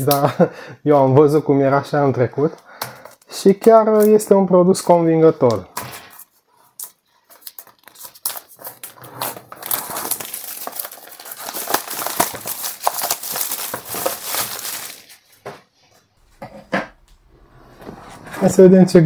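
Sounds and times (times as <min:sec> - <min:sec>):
packaging crinkling and rustling: 0:06.1 - 0:15.4.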